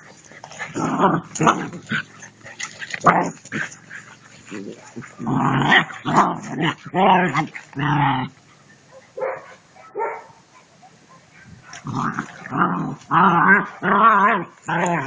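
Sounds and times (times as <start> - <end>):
puppies yipping: 0.0 - 6.1
puppies barking: 0.0 - 15.0.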